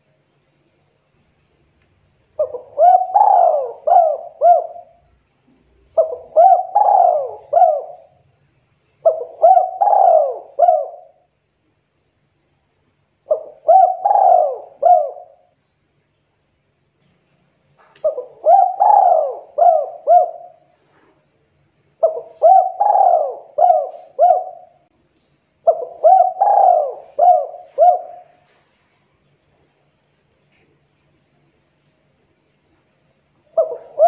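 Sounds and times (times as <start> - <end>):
dove cooing: 2.4 - 8.2, 9.0 - 11.3, 13.3 - 15.5, 18.0 - 21.1, 22.0 - 24.9, 25.6 - 28.6, 33.5 - 34.0.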